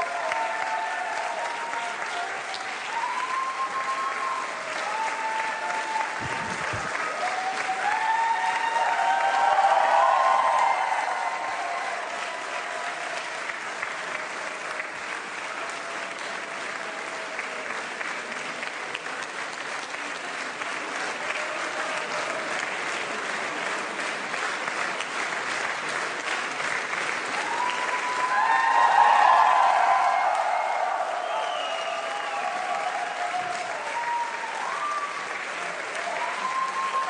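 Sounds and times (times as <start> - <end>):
crowd cheering and shouting: 0.0 - 14.6, 27.3 - 37.0
crowd applauding: 0.0 - 37.0.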